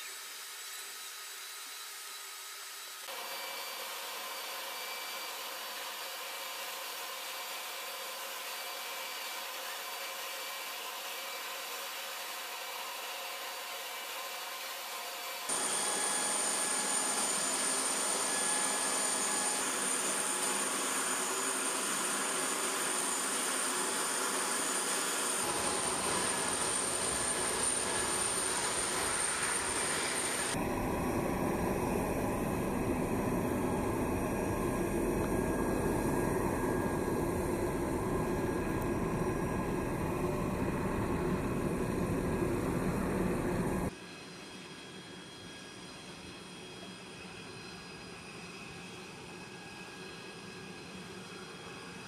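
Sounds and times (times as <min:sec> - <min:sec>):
high jet engine whine: 0:14.6 - 0:52.0
jet engine rush: 0:15.5 - 0:43.9
deep jet engine rumble: 0:25.6 - 0:43.9.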